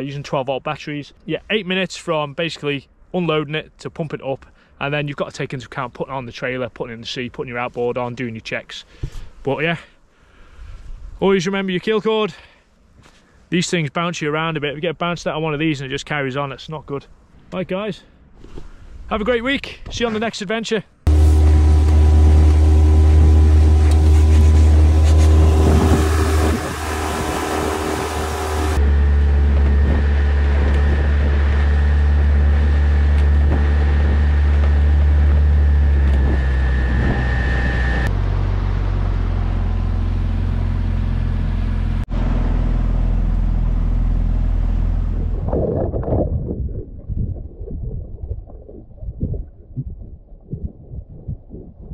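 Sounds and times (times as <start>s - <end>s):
outboard motor running: 21.1s - 45.5s.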